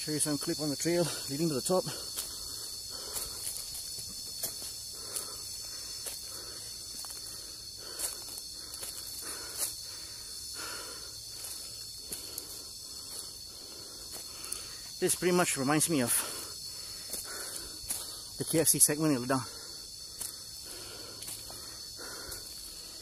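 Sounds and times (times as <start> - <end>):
insect chorus drone: 0.0 - 23.0
footsteps crunching on dry leaves: 2.0 - 10.5, 11.2 - 15.0, 16.1 - 19.0, 20.1 - 23.0.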